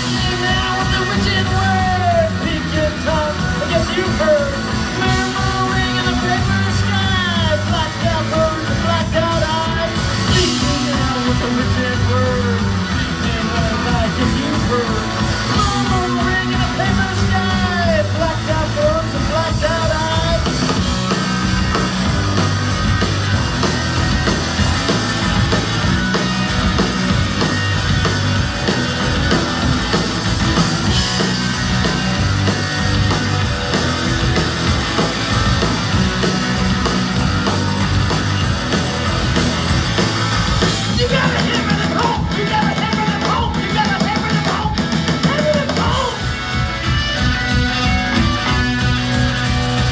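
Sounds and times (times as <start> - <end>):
man singing and shouting: 0.0 - 21.3, 40.6 - 46.4
punk rock band playing: 0.0 - 49.9.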